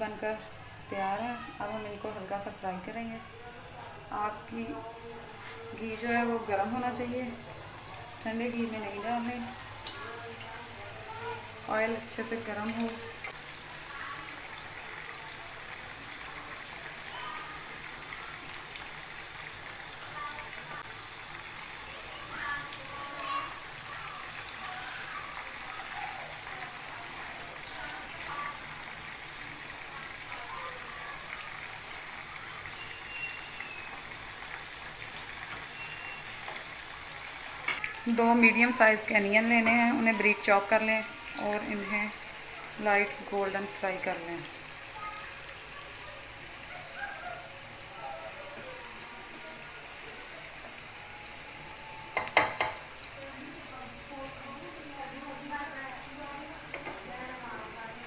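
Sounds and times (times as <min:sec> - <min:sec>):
meatballs deep-frying in oil: 0:00.0 - 0:58.0
spoon knocking against pan: 0:52.1 - 0:52.9, 0:56.7 - 0:57.1.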